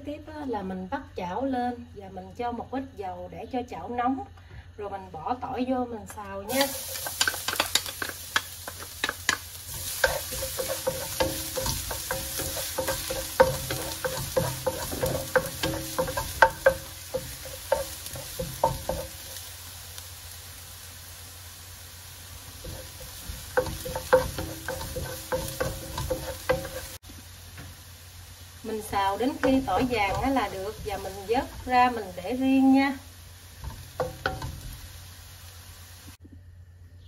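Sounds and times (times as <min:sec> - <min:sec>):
garlic sizzling in hot oil: 0:06.4 - 0:36.2
wooden spatula scraping pan: 0:08.7 - 0:19.2, 0:22.6 - 0:27.0.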